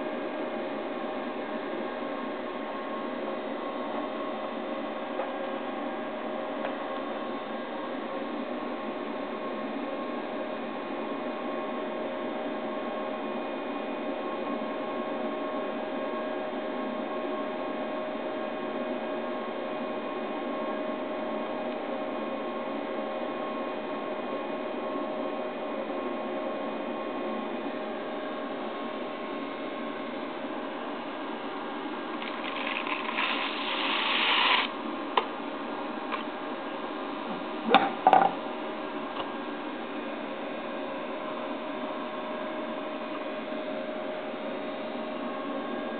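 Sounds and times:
steady machine hum with hiss: 0.0s - 45.9s
rice grains pouring into funnel: 32.2s - 34.8s.

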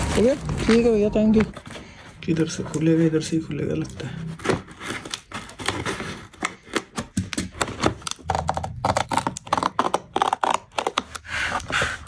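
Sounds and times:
packaging tearing and crackling: 3.8s - 12.0s.

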